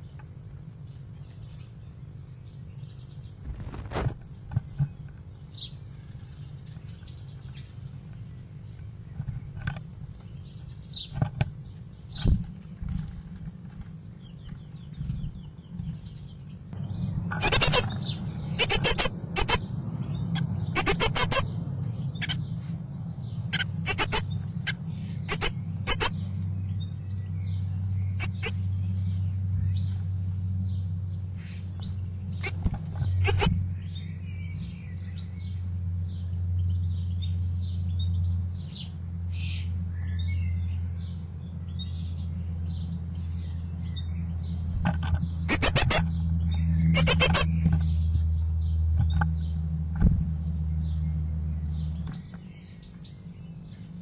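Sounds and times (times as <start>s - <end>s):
birds chirping and ticking: 0.0s - 54.0s
low steady hum: 0.0s - 54.0s.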